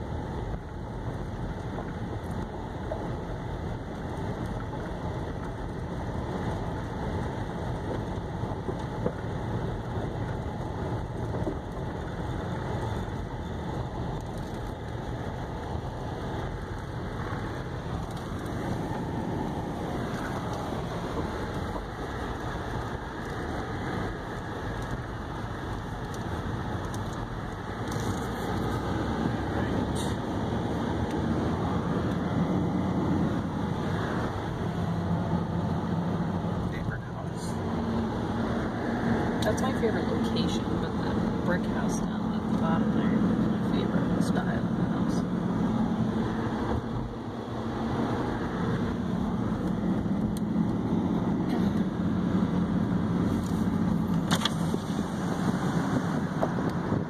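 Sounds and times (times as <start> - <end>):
car engine: 0.0 - 57.0
stones ticking: 10.0 - 28.9.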